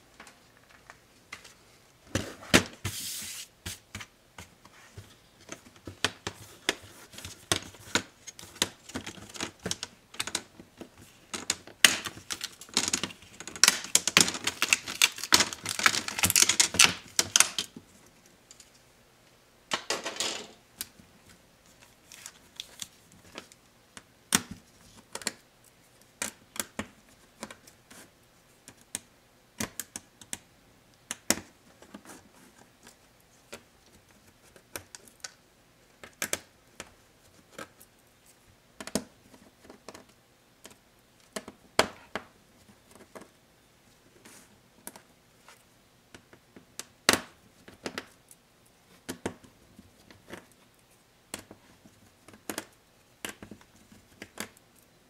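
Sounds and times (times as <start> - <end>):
plastic clips cracking and clicking: 11.3 - 17.7.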